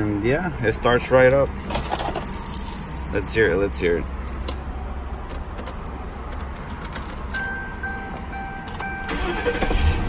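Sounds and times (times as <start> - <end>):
keys clicking against ignition: 1.7 - 9.6
car warning chime beeping: 7.3 - 9.8.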